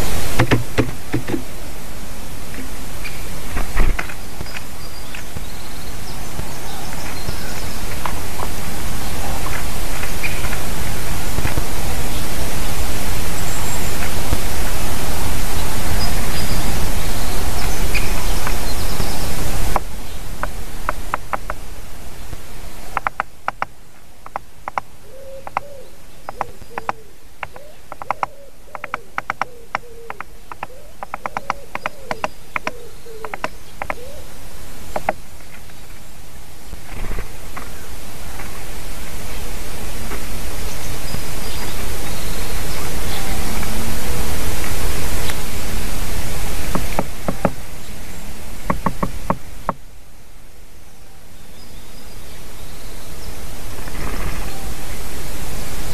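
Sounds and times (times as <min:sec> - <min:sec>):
steady hiss: 0:00.0 - 0:55.9
woodpecker tapping on lens: 0:00.3 - 0:01.6, 0:19.7 - 0:21.6, 0:22.9 - 0:25.7, 0:26.3 - 0:34.1, 0:34.9 - 0:35.2, 0:46.7 - 0:47.6, 0:48.6 - 0:49.8.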